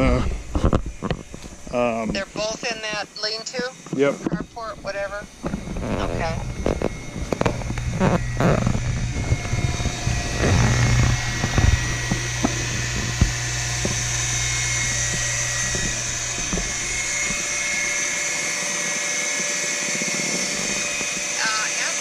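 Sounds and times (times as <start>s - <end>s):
pool pump motor humming: 0.0s - 22.0s
crunches and clicks: 5.3s - 18.2s.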